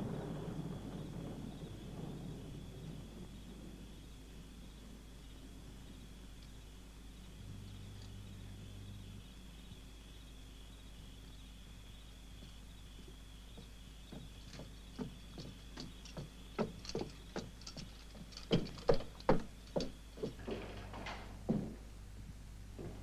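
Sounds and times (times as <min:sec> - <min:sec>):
faint high-pitched hum: 0:00.0 - 0:23.0
footsteps approaching: 0:12.3 - 0:23.0.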